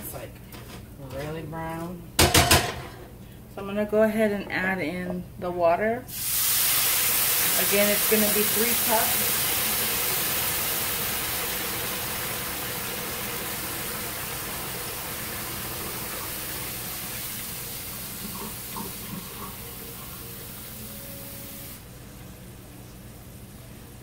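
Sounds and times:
water hissing in hot pan: 0:06.1 - 0:21.8.

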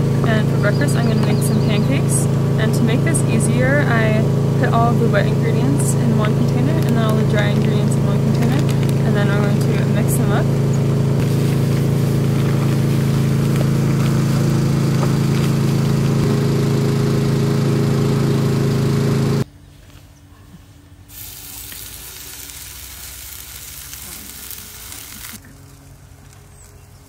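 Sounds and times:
loud steady hum: 0:00.0 - 0:19.6
batter sizzling in frying pan: 0:10.9 - 0:16.2, 0:21.1 - 0:25.7.

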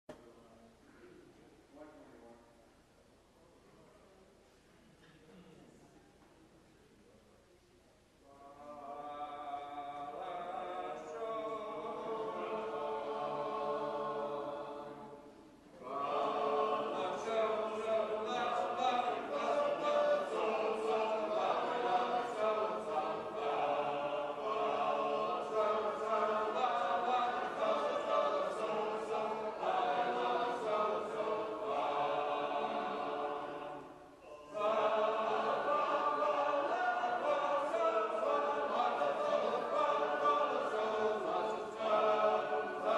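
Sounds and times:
a cappella group singing in parts: 0:08.3 - 0:42.9.

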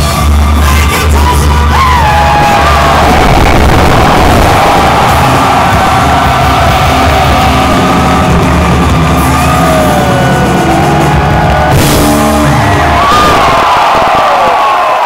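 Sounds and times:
live rock band playing: 0:00.0 - 0:14.3
fans yelling: 0:00.0 - 0:15.0.

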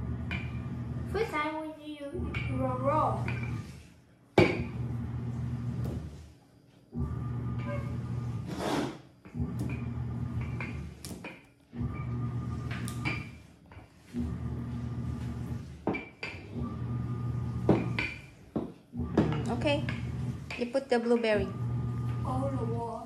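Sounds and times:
rolling pin rumbling over dough: 0:00.0 - 0:23.0.

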